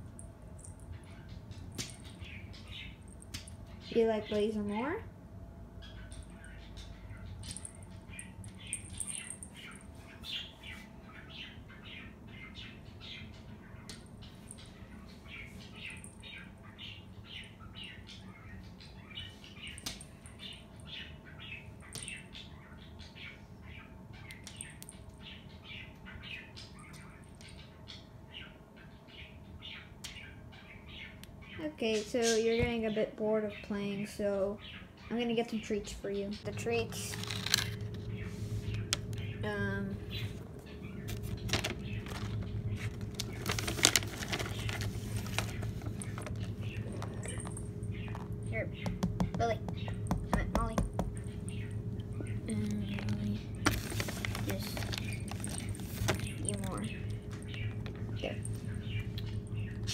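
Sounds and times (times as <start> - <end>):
small birds chirping and squawking: 0.0 - 59.9
plastic bag crinkling: 36.9 - 38.0, 41.1 - 48.4, 52.8 - 56.8
dry treats rattling onto tile floor: 41.3 - 48.2.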